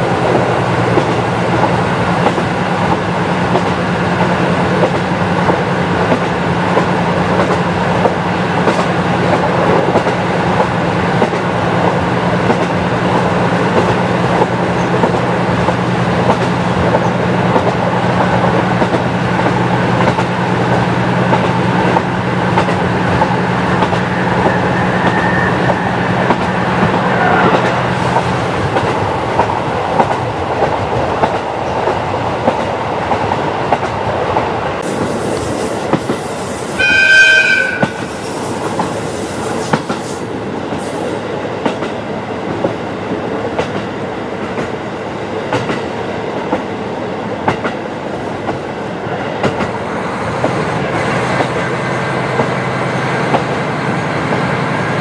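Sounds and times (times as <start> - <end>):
rail joint clicks: 0.0 - 55.0
train horn blast: 36.7 - 38.3.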